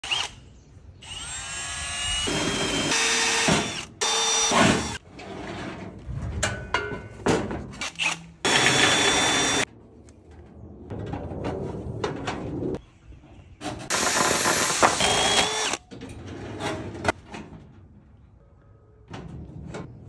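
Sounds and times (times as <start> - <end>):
cordless drill drilling metal: 1.0 - 5.0, 8.0 - 9.7, 13.9 - 15.8
metal knocks and clatter: 5.7 - 7.8, 10.2 - 12.8.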